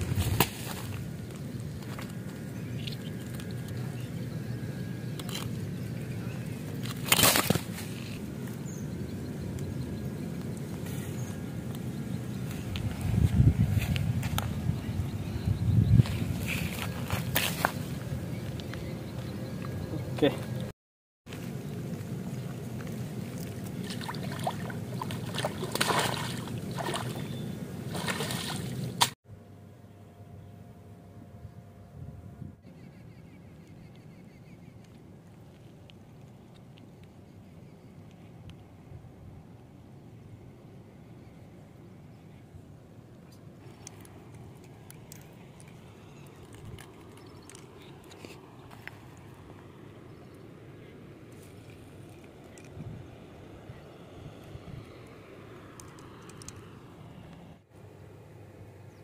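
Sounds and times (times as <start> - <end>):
wind rumble on microphone: 0.0 - 5.0, 7.8 - 20.7, 31.4 - 32.7, 51.6 - 57.6
water sloshing and splashing: 22.0 - 29.2
small handling noises: 43.2 - 49.7
faint clicks: 55.7 - 56.7.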